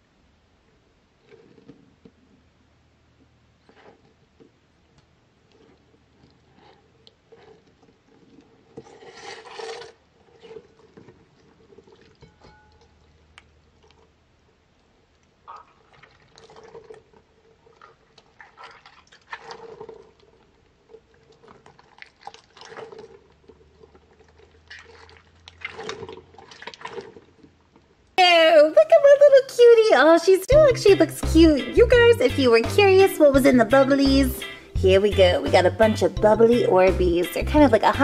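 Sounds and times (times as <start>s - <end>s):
wet squelching of squeezed toy: 3.5s - 27.9s.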